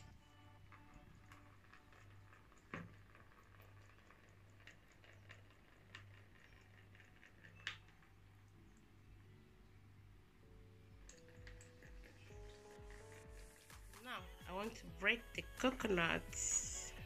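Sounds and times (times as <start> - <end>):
soft ticks and drips: 0.0 - 9.0, 11.0 - 13.8
faint water trickling into bowl: 0.6 - 8.9.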